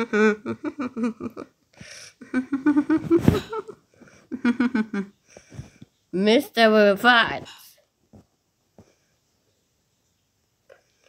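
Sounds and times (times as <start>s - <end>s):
person speaking: 6.2s - 7.8s.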